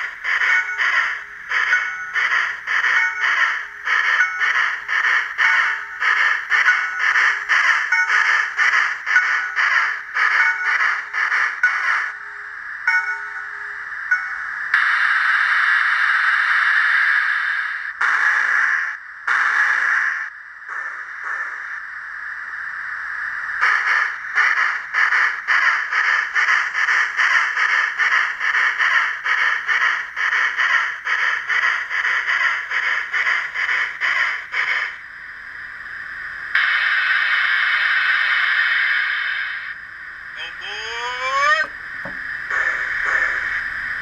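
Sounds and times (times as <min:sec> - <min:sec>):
steam locomotive exhaust chuffs: 0:00.0 - 0:22.6, 0:23.4 - 0:44.0
steam hiss from small speaker: 0:14.7 - 0:21.8, 0:36.5 - 0:39.8.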